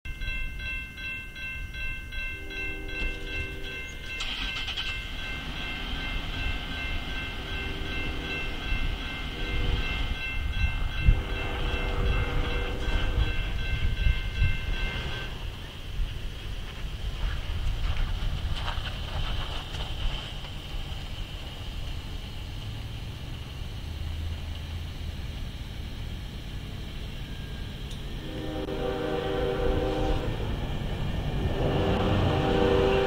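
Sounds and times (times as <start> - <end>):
crossing warning bell ringing: 0.1 - 16.1, 26.4 - 33.0
low rumble of train: 0.1 - 33.0
freight train horn: 2.3 - 4.5, 7.4 - 10.2, 11.0 - 15.5, 28.1 - 30.5, 31.4 - 33.0.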